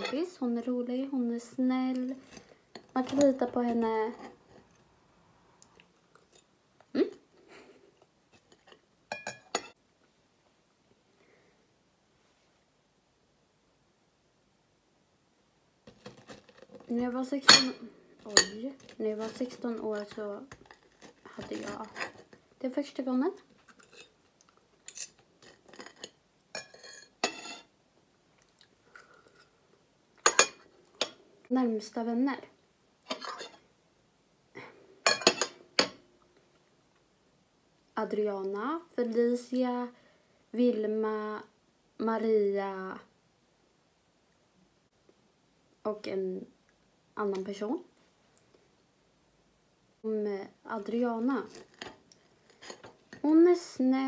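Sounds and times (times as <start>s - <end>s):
cutlery scraping on ceramic plate: 0.0s - 0.3s, 8.4s - 9.8s, 23.7s - 24.2s, 24.9s - 27.7s, 30.2s - 31.2s, 33.1s - 33.6s, 35.1s - 36.0s, 51.5s - 53.2s
cutlery clinking on plate: 9.1s - 9.8s, 35.1s - 36.0s.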